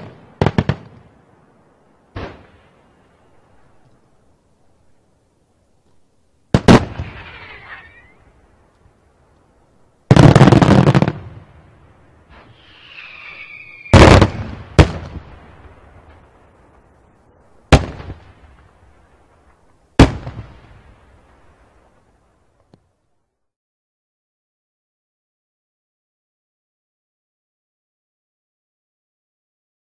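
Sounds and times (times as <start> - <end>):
firework whistle falling in pitch: 12.4 - 14.1.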